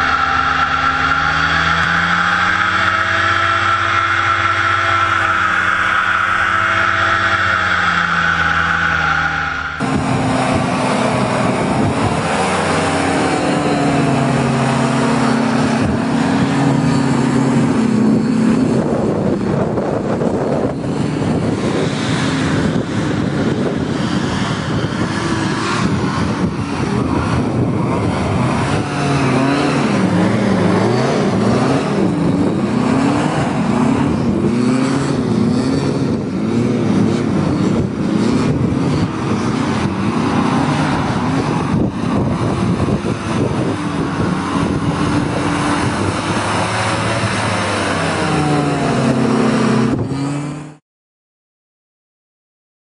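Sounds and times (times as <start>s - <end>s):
hovercraft engine and propeller: 9.6s - 34.5s, 35.1s - 50.8s.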